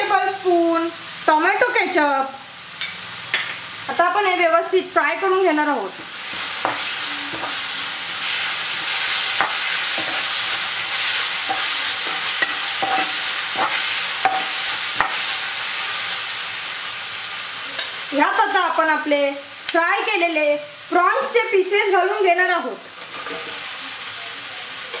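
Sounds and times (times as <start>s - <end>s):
vegetables sizzling in frying pan: 0.0s - 25.0s
metal spoon scraping pan: 6.2s - 15.3s.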